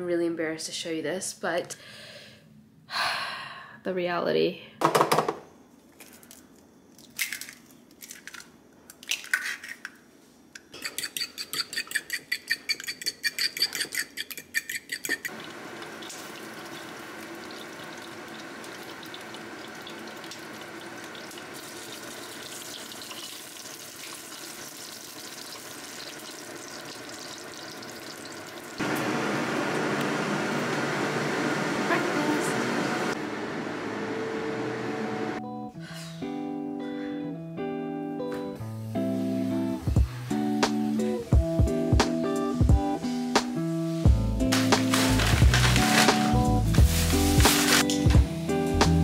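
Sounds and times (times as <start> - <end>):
eggs beaten in a bowl: 10.8 - 15.5
eggs sizzling in a frying pan: 15.3 - 28.8.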